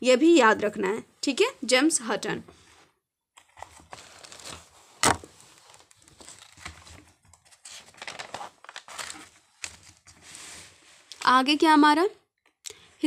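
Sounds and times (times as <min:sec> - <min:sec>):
paper pages rustling: 0:03.4 - 0:11.3
sharp paper crack: 0:03.8 - 0:10.0.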